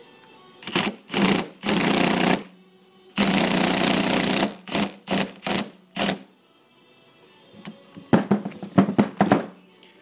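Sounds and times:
cordless impact driver hammering: 0.6 - 2.5, 3.2 - 6.3.

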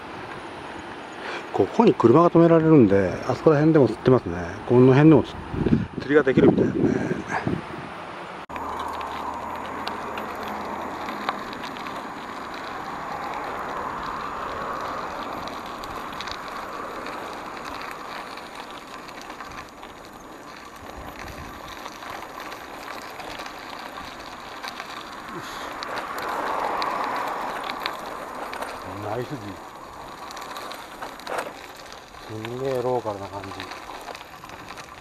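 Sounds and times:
bicycle tyres crunching on gravel: 0.0 - 7.5, 8.5 - 35.0
small clicks and rattles: 8.5 - 35.0.

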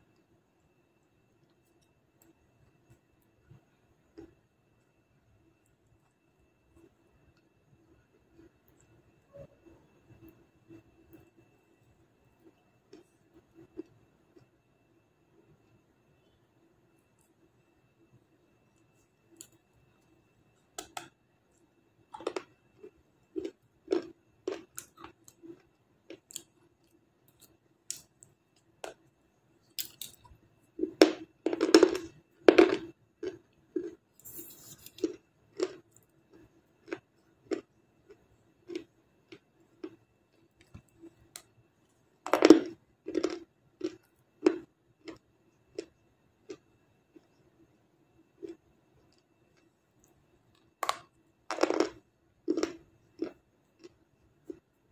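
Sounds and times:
crunchy chewing: 12.4 - 14.5, 22.1 - 29.0, 29.6 - 41.5, 42.3 - 54.8.

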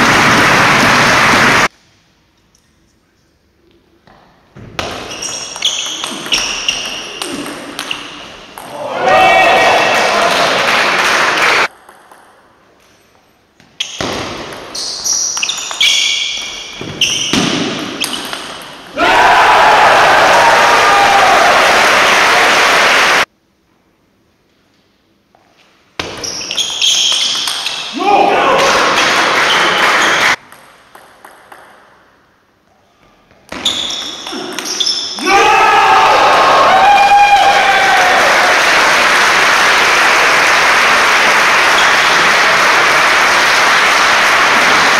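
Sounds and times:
sports hall noise: 0.0 - 44.9
shoes squeaking on floor: 4.8 - 8.4, 14.7 - 18.2, 25.6 - 27.9, 33.5 - 35.2.

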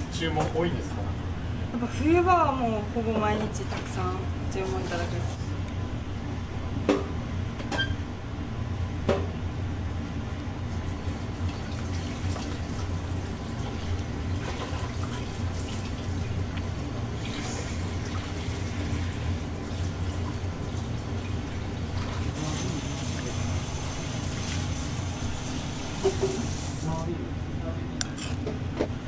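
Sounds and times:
broth bubbling in a pot: 10.6 - 26.5.

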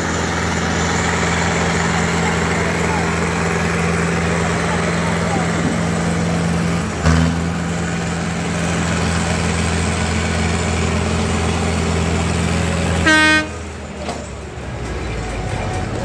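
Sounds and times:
tractor diesel engine under load: 0.0 - 16.0
loud horn blast: 13.0 - 13.7.

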